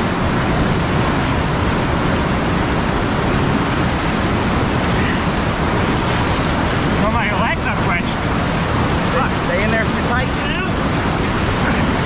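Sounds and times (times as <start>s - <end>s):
whitewater rapid rushing: 0.0s - 12.0s.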